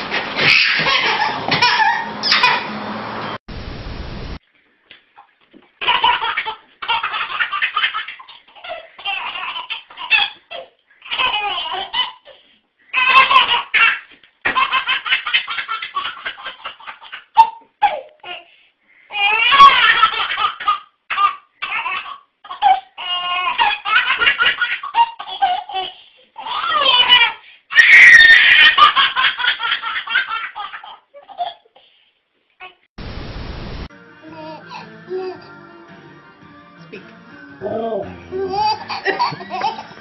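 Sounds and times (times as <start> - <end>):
baby belly-laughing: 0.4 - 2.7, 5.8 - 18.5, 19.1 - 31.8, 38.3 - 40.0.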